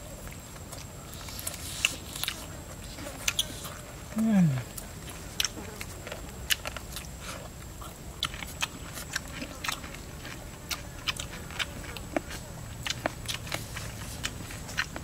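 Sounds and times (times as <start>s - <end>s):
man chewing ribs: 0.0s - 15.0s.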